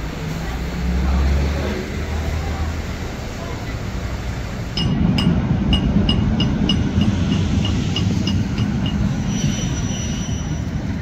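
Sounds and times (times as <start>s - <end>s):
diesel coach engine rumbling: 0.0s - 11.0s
steady high tone: 4.8s - 9.9s.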